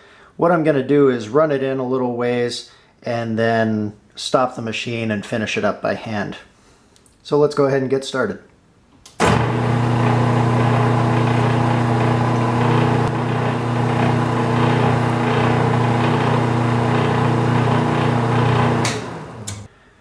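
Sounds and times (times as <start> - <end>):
lathe motor humming: 9.2 - 19.7.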